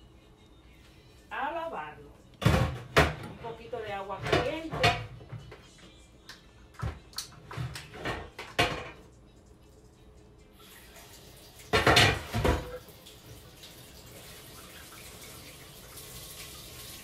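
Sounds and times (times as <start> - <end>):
kitchenware clattering in sink: 2.4 - 5.5, 7.3 - 9.1, 11.7 - 12.9
water running from tap: 10.4 - 17.0.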